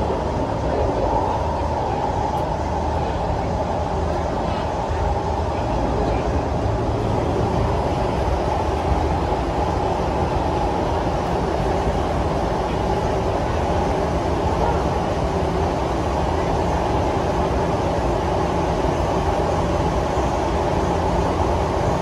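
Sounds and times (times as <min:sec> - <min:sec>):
mid-pitched hum: 0:00.0 - 0:22.0
train rumble: 0:00.0 - 0:22.0.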